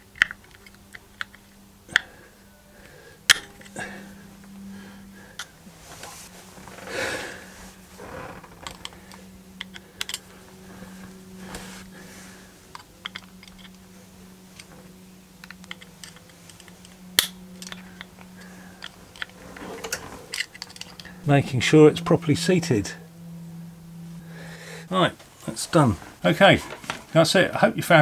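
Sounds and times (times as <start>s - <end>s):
steady low hum: 0.0s - 28.0s
metal tool clicking and scraping: 9.6s - 10.3s, 12.7s - 13.8s, 15.4s - 21.1s.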